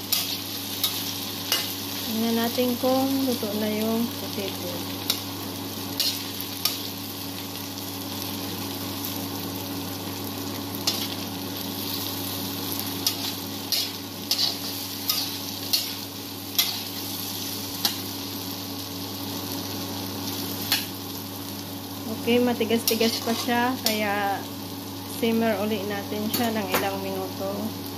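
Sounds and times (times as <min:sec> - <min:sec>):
vegetables sizzling in oil: 0:00.0 - 0:27.9
metal spatula stirring: 0:13.0 - 0:16.0.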